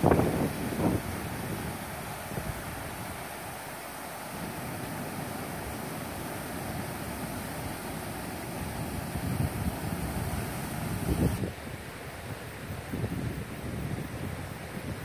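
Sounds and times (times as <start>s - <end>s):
wind buffeting microphone: 0.0s - 3.2s, 8.5s - 15.0s.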